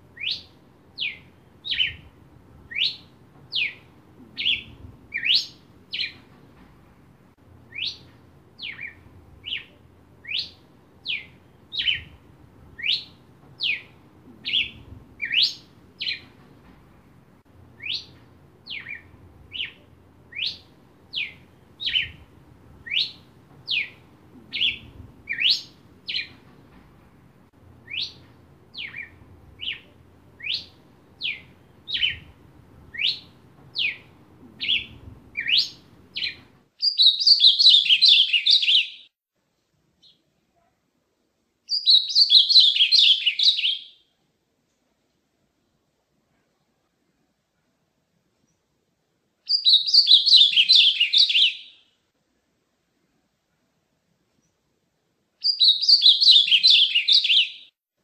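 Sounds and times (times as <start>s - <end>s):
dense bird song: 0.0s - 6.7s, 7.3s - 39.1s, 41.7s - 44.2s, 49.4s - 52.0s, 55.4s - 57.8s
bird whistling song: 0.2s - 2.1s, 2.7s - 6.2s, 7.7s - 12.2s, 12.8s - 16.2s, 17.8s - 26.3s, 27.8s - 32.3s, 32.9s - 39.1s, 41.7s - 44.0s, 49.5s - 51.9s, 55.4s - 57.7s.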